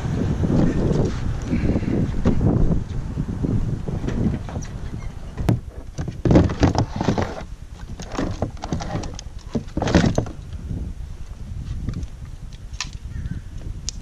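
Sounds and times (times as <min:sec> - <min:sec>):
kayak gear knocking and rattling: 0:03.9 - 0:10.6.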